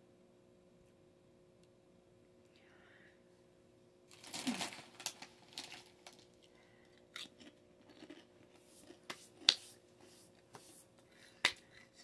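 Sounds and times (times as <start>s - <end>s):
snack packaging crinkling: 4.1s - 9.6s.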